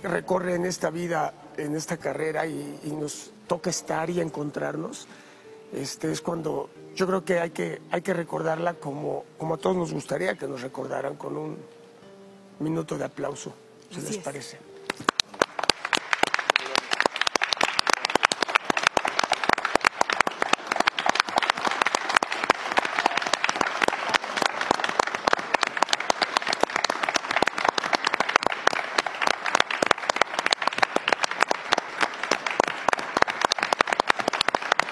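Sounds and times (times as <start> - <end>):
people clapping: 14.8 - 34.9.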